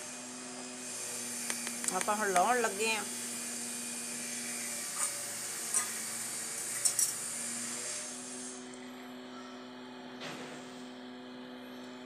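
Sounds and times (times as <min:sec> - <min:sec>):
tea boiling hiss: 0:04.8 - 0:08.7.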